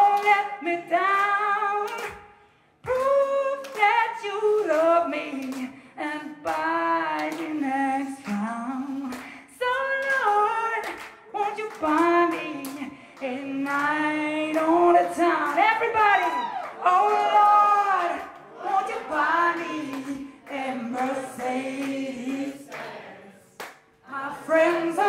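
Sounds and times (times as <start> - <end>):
woman singing unaccompanied: 0.0 - 2.1, 2.9 - 22.7, 24.1 - 25.0
singer breathing: 2.3 - 2.8, 12.9 - 13.2.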